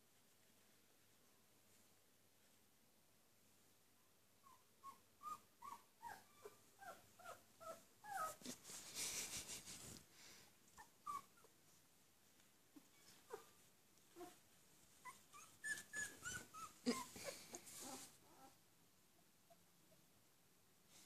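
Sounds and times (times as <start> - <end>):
rustling: 0.0 - 2.8, 7.2 - 18.6
puppy whimpering squeaks: 4.4 - 8.4, 10.8 - 11.5, 15.0 - 18.5.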